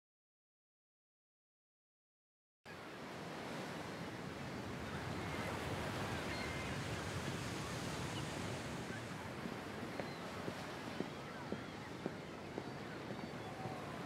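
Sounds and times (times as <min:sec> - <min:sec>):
ocean surf washing on beach: 0:02.8 - 0:14.0.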